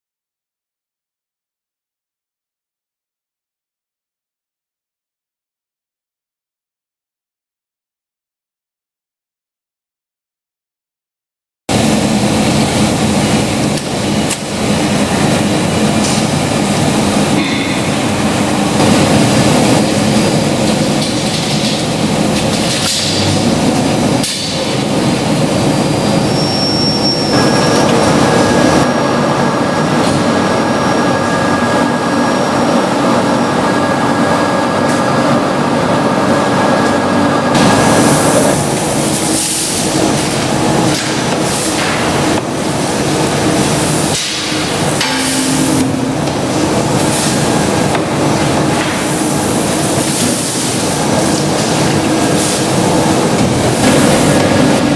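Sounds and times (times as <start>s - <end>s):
food-processing machinery noise: 11.7s - 54.9s
thin steady whine: 42.4s - 54.9s
sharp metallic knocks: 44.1s - 46.8s.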